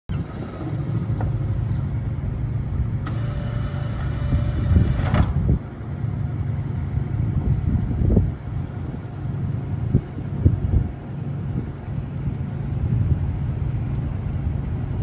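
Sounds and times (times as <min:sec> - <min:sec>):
engine idling: 0:00.1 - 0:15.0
high whine: 0:00.1 - 0:15.0
click: 0:13.9 - 0:14.1.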